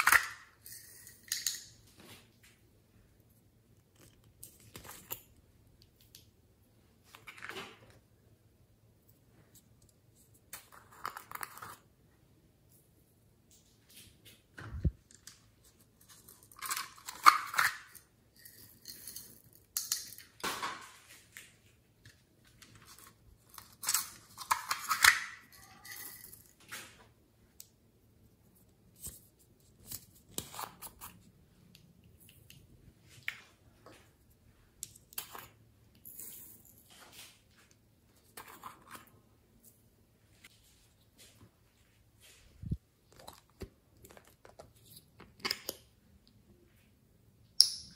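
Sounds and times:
plastic pots rustling and clicking: 42.4 - 45.9.

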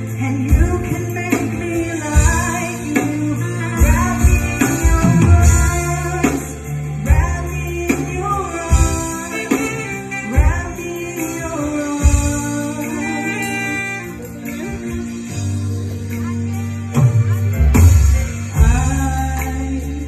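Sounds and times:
woman singing: 0.0 - 15.5, 18.4 - 20.0
keyboard: 0.0 - 20.0
steady drum beat: 0.0 - 20.0
sustained bass line: 14.1 - 20.0.

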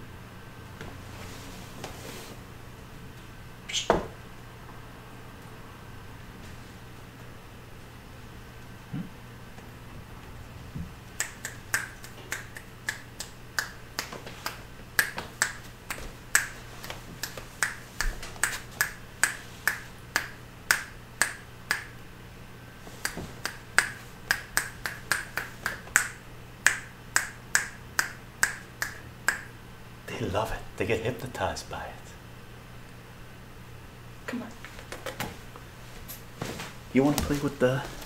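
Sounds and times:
fingers snapping: 11.2 - 22.0, 23.0 - 29.5.

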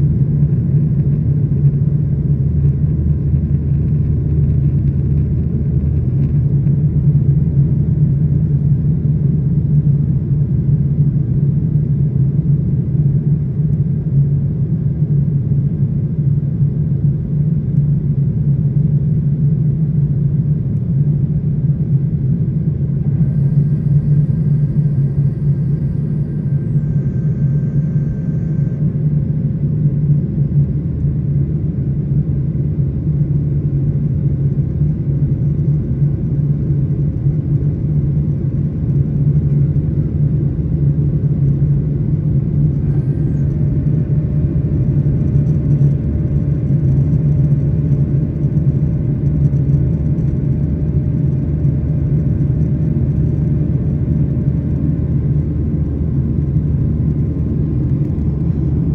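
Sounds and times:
airplane cabin engine rumble: 0.0 - 58.9
faint steady tones: 22.6 - 31.6.

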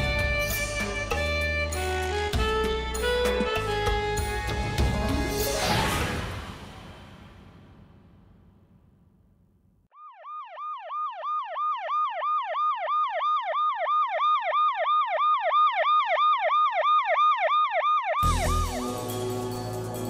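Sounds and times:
ambulance siren yelping: 10.0 - 19.7.

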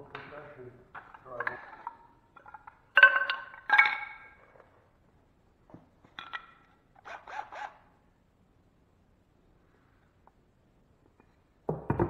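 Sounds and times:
wooden strips clacking together: 0.1 - 4.4.

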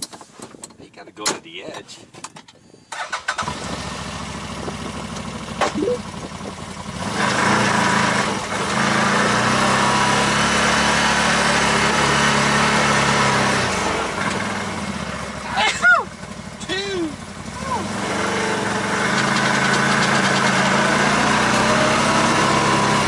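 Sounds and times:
vehicle engine running: 3.5 - 10.4, 13.2 - 23.0.

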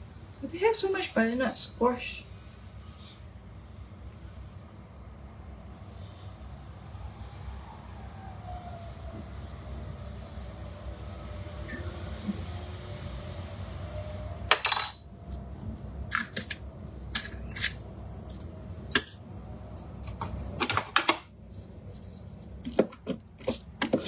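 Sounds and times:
low steady hum: 0.0 - 8.2
wooden spatula stirring and knocking: 19.8 - 24.0.

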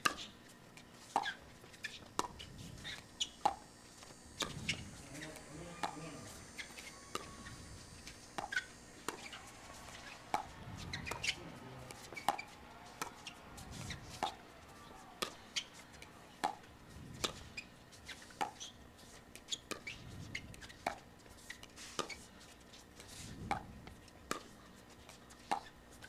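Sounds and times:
paddles striking pickleball: 1.1 - 18.7, 21.8 - 22.2, 24.3 - 24.6, 25.4 - 25.7.

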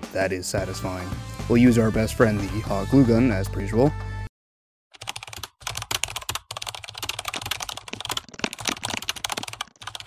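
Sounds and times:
fast keyboard typing: 5.0 - 10.0.

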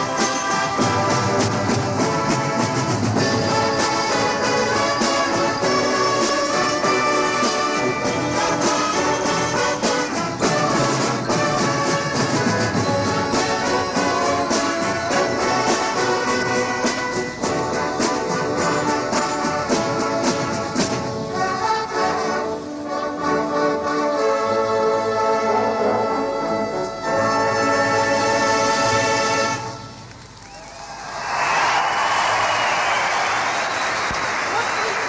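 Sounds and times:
drums beating: 0.0 - 22.0
brass instruments playing: 0.0 - 30.0.

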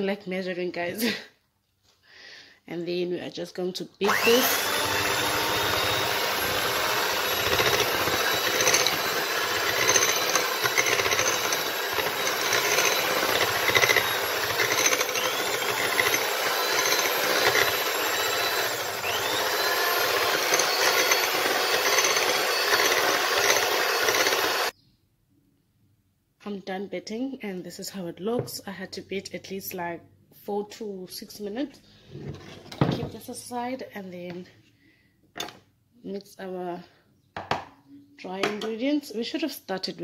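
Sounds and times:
electric hand mixer whisking: 4.0 - 24.7.

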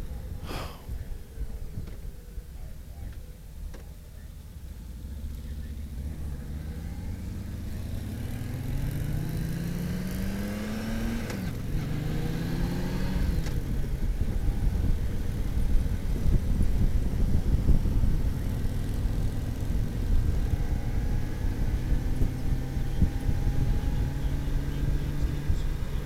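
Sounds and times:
motorcycle engine accelerating: 4.4 - 26.0
wind rush: 12.3 - 19.2.

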